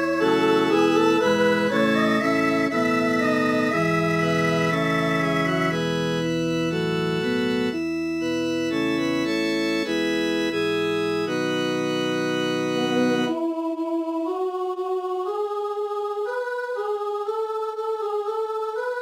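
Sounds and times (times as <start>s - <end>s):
synthesized organ chords: 0.0s - 13.6s.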